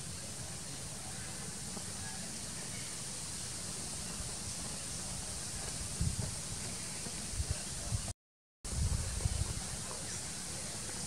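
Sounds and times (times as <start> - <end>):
even hiss: 0.0 - 8.1.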